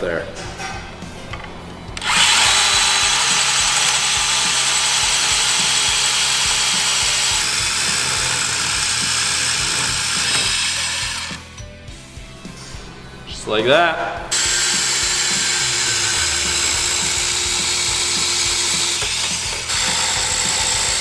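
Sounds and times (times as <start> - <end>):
band saw cutting metal: 2.0 - 11.5, 14.3 - 21.0.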